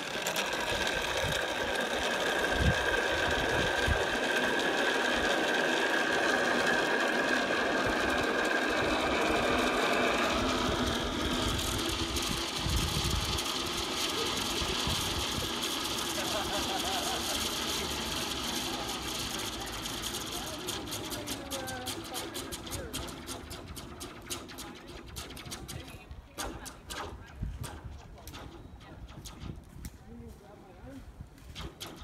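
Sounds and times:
zip-line pulleys whirring on cable: 0.0 - 29.8, 31.6 - 32.0.

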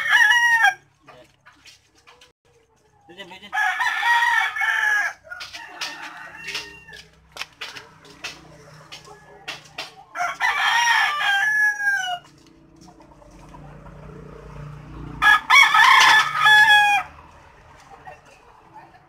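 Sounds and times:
rooster crowing: 0.0 - 0.9, 3.5 - 7.3, 9.0 - 12.4, 15.1 - 17.3.

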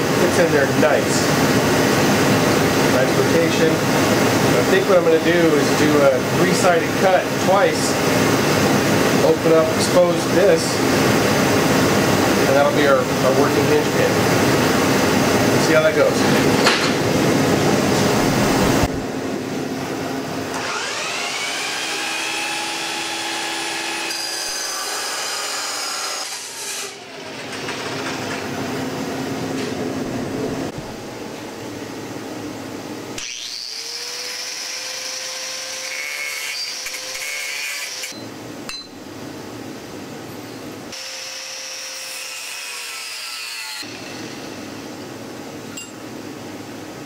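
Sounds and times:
chop saw cutting steel: 20.5 - 27.1, 33.2 - 38.2, 40.9 - 44.6
angle grinder cutting steel: 20.6 - 27.0, 33.2 - 38.2, 40.9 - 44.6.

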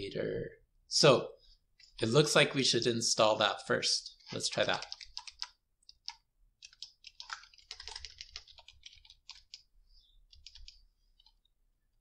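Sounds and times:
keyboard typing: 4.6 - 9.7, 10.3 - 11.5.

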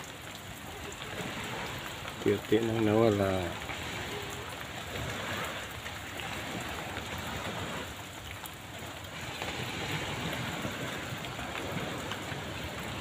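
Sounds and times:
rain falling steadily: 0.0 - 13.0.

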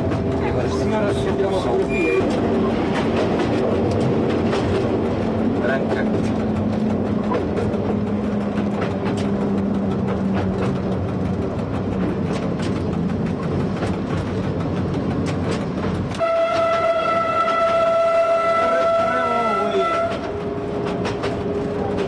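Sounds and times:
diesel railcar engine drone: 0.0 - 22.0
wheels clattering over rail joints: 0.0 - 22.0
train horn blast: 16.1 - 20.6.

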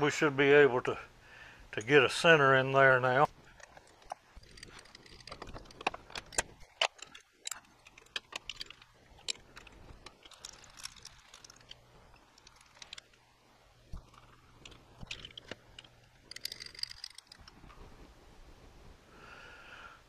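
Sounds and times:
metallic clicks of lathe chuck: 3.6 - 13.1, 14.0 - 17.6.

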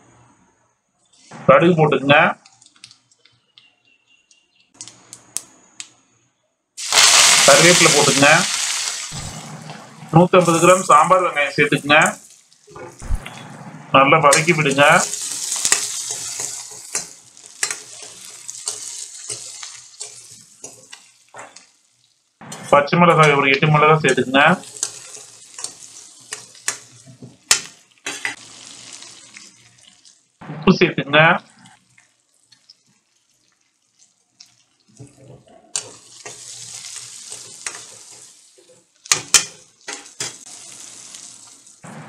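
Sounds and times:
onions sizzling in hot oil: 6.8 - 13.1, 14.3 - 22.4, 23.2 - 30.4, 31.6 - 41.9
metal ladle scraping pan: 14.4 - 21.6.

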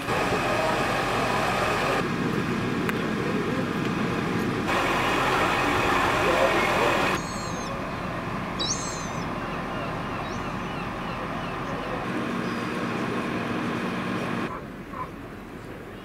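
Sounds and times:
fire engines idling: 0.0 - 16.0
high bird chirping: 7.2 - 12.7.

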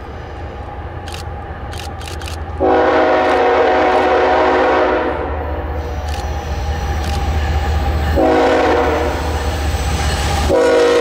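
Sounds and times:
locomotive engine rumble: 0.0 - 11.0
locomotive air horn blast: 2.6 - 6.1, 8.2 - 9.4, 10.5 - 11.0.

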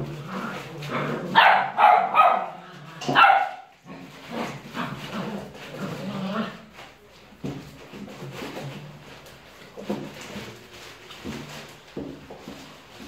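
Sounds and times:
puppies barking and yapping: 0.1 - 6.7
loud sharp barks: 1.4 - 3.7.

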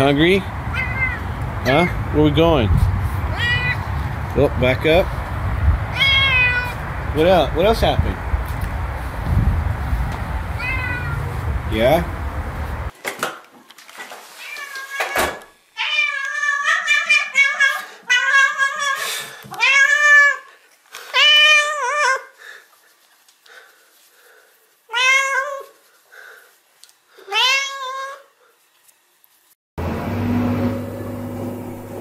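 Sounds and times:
cat meowing: 0.7 - 1.4, 3.3 - 4.0, 5.9 - 6.8, 10.6 - 11.4, 15.8 - 19.0, 19.6 - 20.4, 21.2 - 22.3, 24.9 - 25.8, 27.3 - 28.3.

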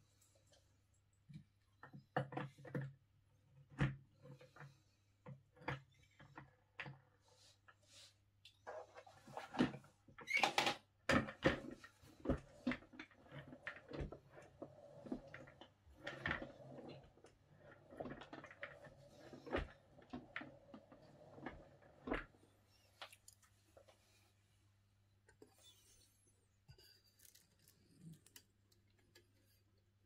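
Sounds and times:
chair wheels rolling on wood: 11.1 - 22.6.

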